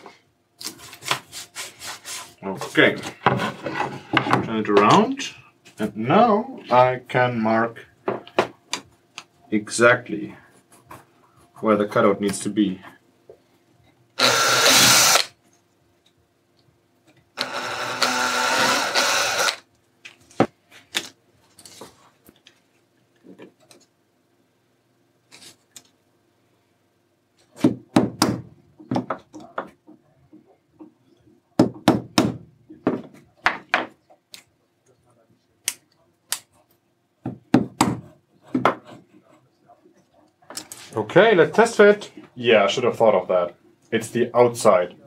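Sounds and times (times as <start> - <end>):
cordless drill boring into plastic: 14.2 - 15.3, 17.4 - 19.6.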